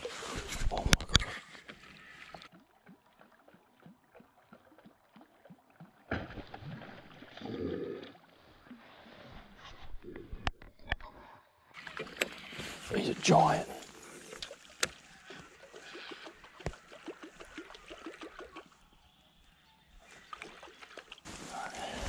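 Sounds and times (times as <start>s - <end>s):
water splashing and gurgling: 0.0s - 10.4s, 11.8s - 19.3s, 19.9s - 22.0s.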